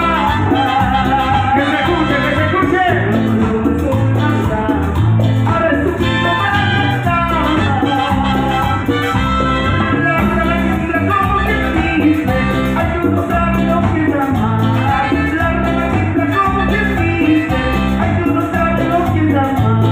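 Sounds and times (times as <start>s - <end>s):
horn lines: 0.0s - 3.0s, 6.0s - 13.2s
live salsa band: 0.0s - 19.9s.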